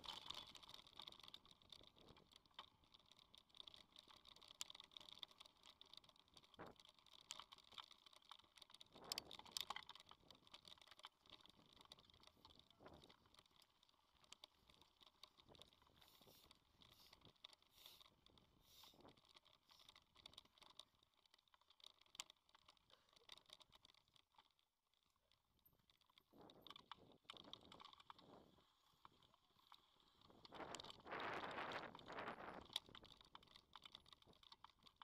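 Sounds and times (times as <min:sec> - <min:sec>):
bike tyres on gravel: 0:00.0 - 0:20.9
bike rattles: 0:00.0 - 0:25.1, 0:25.7 - 0:35.0.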